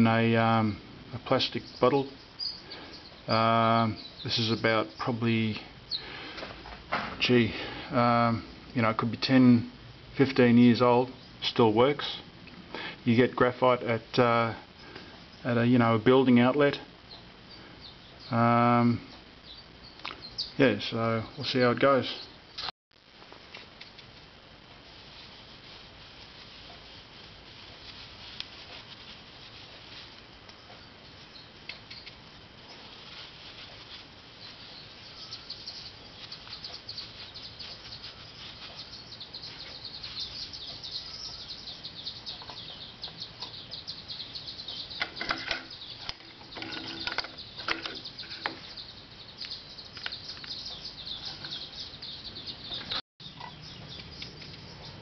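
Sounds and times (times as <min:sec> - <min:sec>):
metal parts clicking and knocking: 0:45.0 - 0:48.5.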